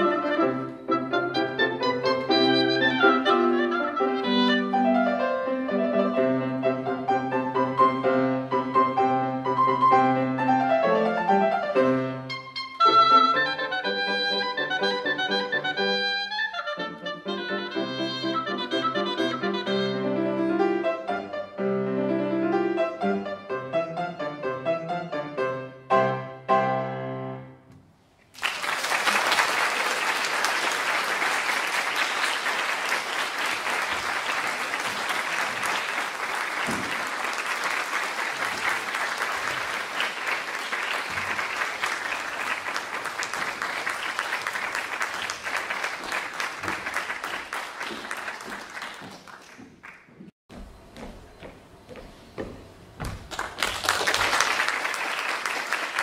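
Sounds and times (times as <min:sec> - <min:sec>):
grand piano chords: 0:00.0 - 0:13.8, 0:17.3 - 0:28.1
audience applauding: 0:28.3 - 0:50.1, 0:53.2 - 0:56.0.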